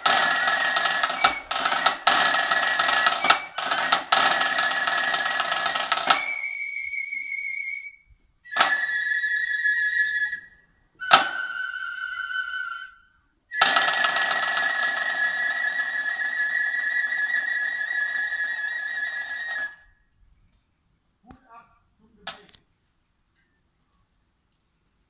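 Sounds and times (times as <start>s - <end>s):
drum beats: 0.0s - 6.4s, 11.1s - 11.4s, 13.6s - 15.2s
flutes playing held notes: 0.2s - 14.1s.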